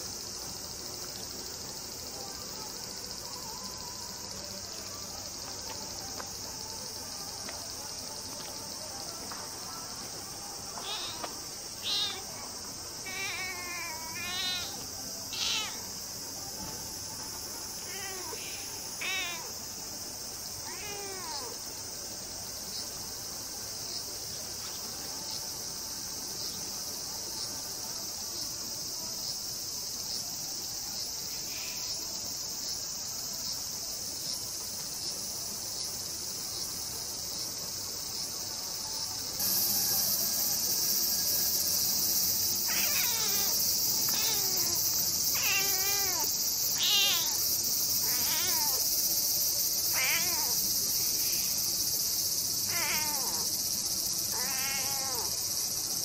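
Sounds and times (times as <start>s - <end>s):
cicadas droning: 0.0s - 56.0s
cat meowing softly: 10.8s - 12.4s, 13.0s - 15.8s, 17.8s - 19.6s, 20.6s - 21.6s, 42.6s - 47.4s, 48.0s - 48.9s, 49.9s - 50.6s, 52.7s - 53.5s, 54.3s - 55.4s.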